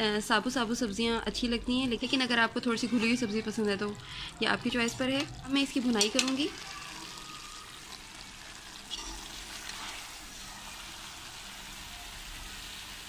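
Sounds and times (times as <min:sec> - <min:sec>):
curry sizzling in oil: 0:00.0 - 0:13.0
spoon scraping a pan: 0:04.9 - 0:06.6, 0:08.8 - 0:10.9.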